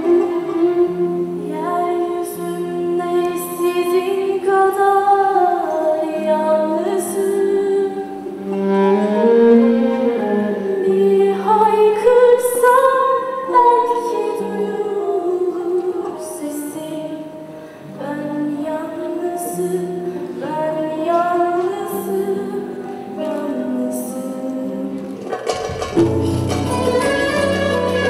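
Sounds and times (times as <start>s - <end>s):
woman singing: 0.0s - 8.6s, 10.0s - 25.3s
instrumental accompaniment: 0.0s - 28.0s.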